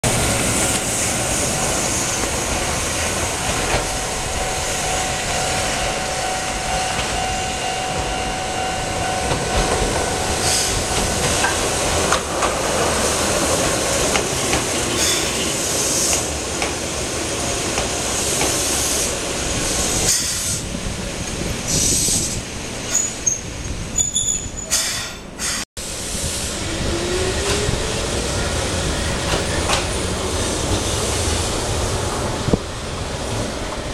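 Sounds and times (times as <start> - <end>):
electric train braking: 0.0 - 16.4
train passing on rails: 0.0 - 33.9
high brake squeal: 3.3 - 11.1, 14.9 - 16.2, 21.7 - 25.6.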